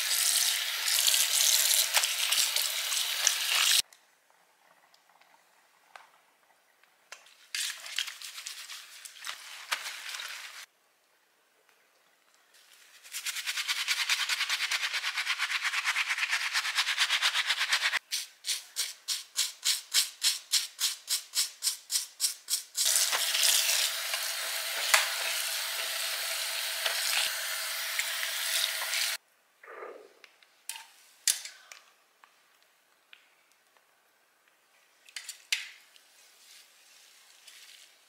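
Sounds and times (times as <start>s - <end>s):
toothbrush scrubbing wet hair: 7.6s - 10.7s, 12.7s - 29.2s
faucet running into sink: 22.9s - 29.2s.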